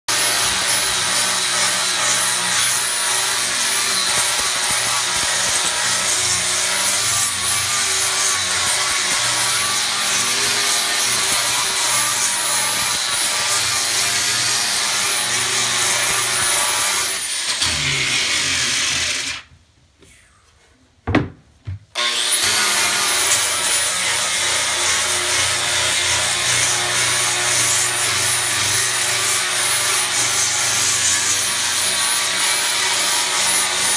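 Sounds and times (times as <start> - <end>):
power sander whining: 13.6 - 19.6.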